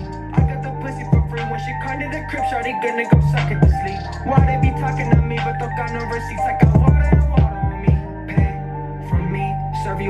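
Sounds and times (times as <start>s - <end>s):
hip hop beat through speakers: 0.0s - 10.0s.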